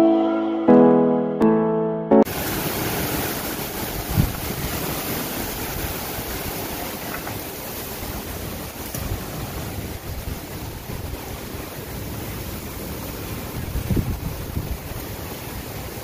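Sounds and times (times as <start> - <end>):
electric piano tune: 0.0 - 2.4
gusty wind buffeting microphone: 2.4 - 7.2, 7.8 - 16.0.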